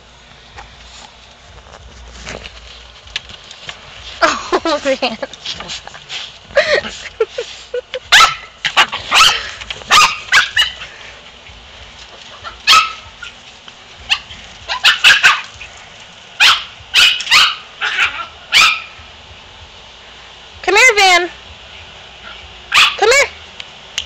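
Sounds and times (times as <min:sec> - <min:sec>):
dog barking: 0:08.1 - 0:10.8, 0:12.6 - 0:13.3, 0:14.1 - 0:15.5, 0:16.4 - 0:19.0, 0:22.7 - 0:23.1.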